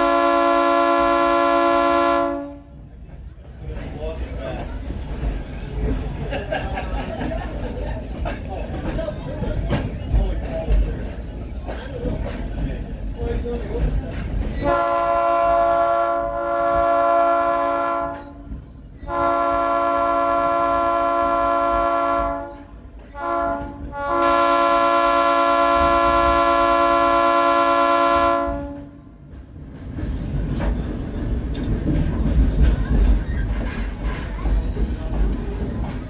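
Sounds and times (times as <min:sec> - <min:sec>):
train horn blasts: 0:00.0 - 0:02.8, 0:14.6 - 0:29.1
moving train rumble: 0:00.0 - 0:36.0.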